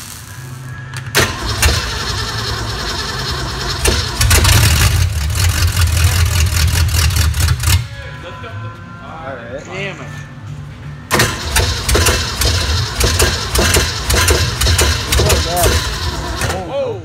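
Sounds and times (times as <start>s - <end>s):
boat engine starting and running: 1.2s - 7.8s, 11.1s - 16.6s.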